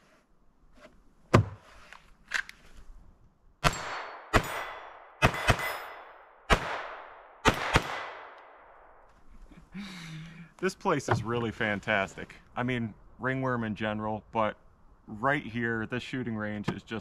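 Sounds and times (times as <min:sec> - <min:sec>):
echoing gunshots: 0:03.6 - 0:08.9.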